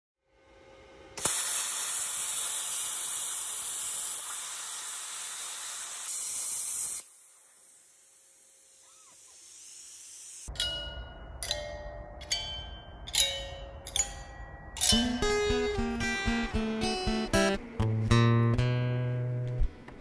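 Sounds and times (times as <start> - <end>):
arc welding crackling hiss: 1.1 - 10.5
welding arc striking click: 1.2 - 4.6.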